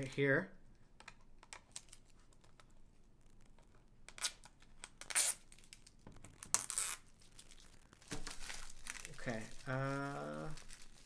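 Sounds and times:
shrink-wrap tearing: 4.1 - 11.0.

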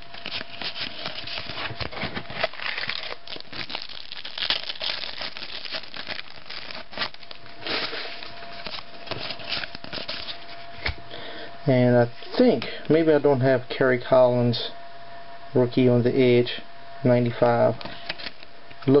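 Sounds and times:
card pack wrapper crinkling and tearing: 0.0 - 10.9, 18.0 - 18.5.

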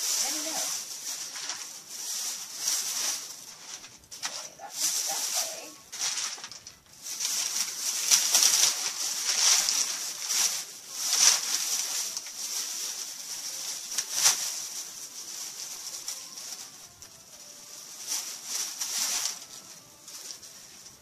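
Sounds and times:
packaging rustling and crinkling: 0.0 - 21.0.

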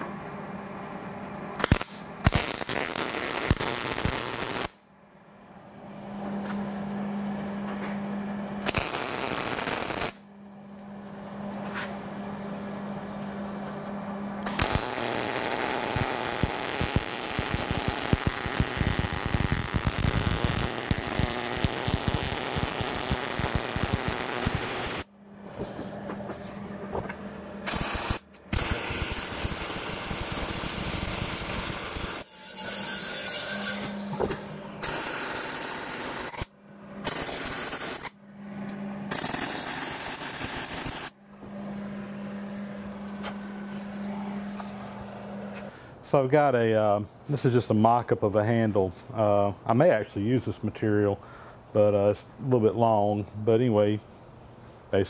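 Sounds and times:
low steady hum: 0.0 - 40.2, 41.1 - 55.0
welder arc crackling: 1.6 - 4.8, 8.6 - 10.9, 14.4 - 25.1, 27.6 - 32.3, 34.8 - 36.5, 37.1 - 38.2, 39.1 - 41.2.

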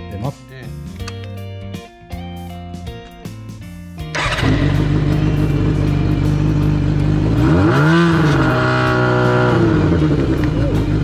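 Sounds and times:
motorcycle engine idling and revving: 4.1 - 11.0.

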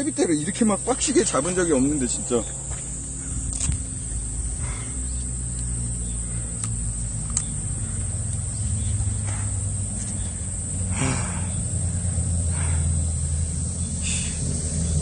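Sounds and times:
high-pitched insect drone: 0.0 - 15.0
low wind rumble: 0.0 - 15.0.

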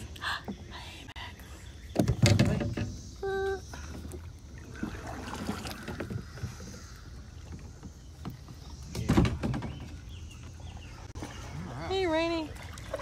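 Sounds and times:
paddle strokes in water: 3.7 - 9.1.

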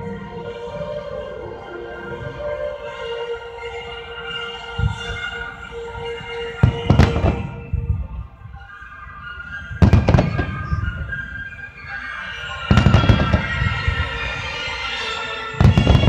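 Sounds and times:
music playing: 0.0 - 16.0
fireworks bursting: 6.6 - 8.0, 9.8 - 11.2, 12.6 - 14.7, 15.6 - 16.0.

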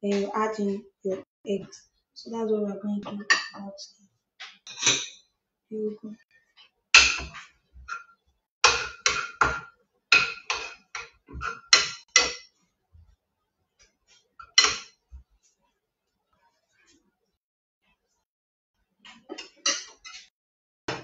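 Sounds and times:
metal utensil clanking on frying pan: 8.7 - 12.5, 14.4 - 14.9, 19.3 - 20.3.

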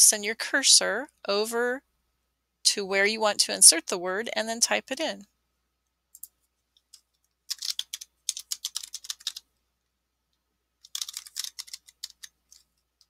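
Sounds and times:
typing on computer keyboard: 6.9 - 9.5, 10.8 - 12.7.

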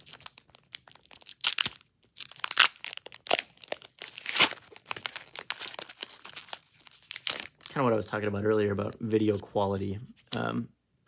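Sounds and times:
foil pack tearing and crinkling: 0.0 - 7.8.

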